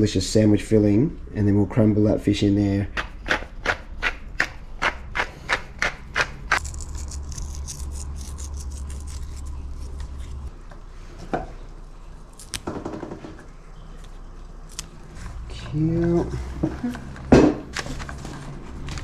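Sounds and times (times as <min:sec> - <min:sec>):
pepper mill grinding: 0:05.9 - 0:10.5.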